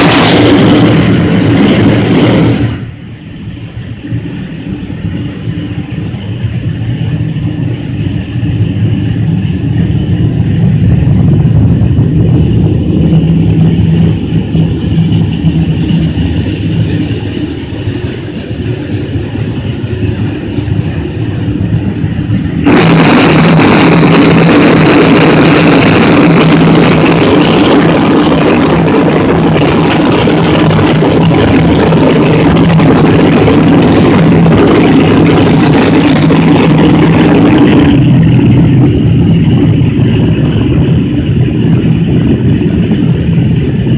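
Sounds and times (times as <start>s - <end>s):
loud rushing hiss: 0.0s - 4.0s, 19.2s - 42.8s
machinery humming: 0.0s - 43.9s.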